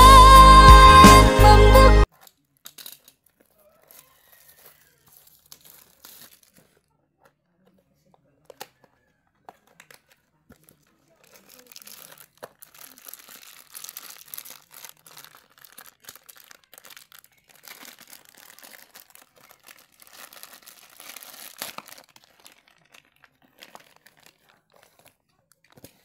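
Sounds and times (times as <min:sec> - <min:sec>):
plastic packaging crinkling: 0:02.0 - 0:07.0, 0:08.4 - 0:26.0.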